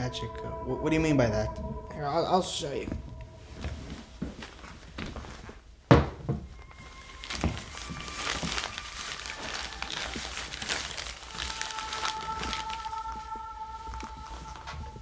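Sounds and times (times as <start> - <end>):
paper crinkling rustle: 6.6 - 15.0.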